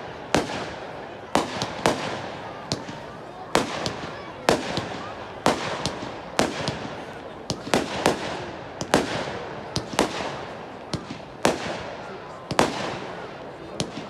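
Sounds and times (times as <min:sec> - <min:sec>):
fireworks bangs with echo: 0:00.0 - 0:14.0.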